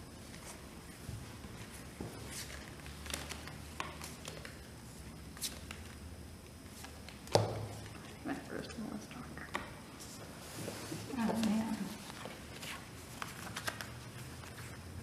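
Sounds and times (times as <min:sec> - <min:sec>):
low room hum: 0:00.0 - 0:15.0
playing cards clicking and rustling: 0:01.4 - 0:04.7, 0:05.3 - 0:06.0, 0:11.1 - 0:14.8.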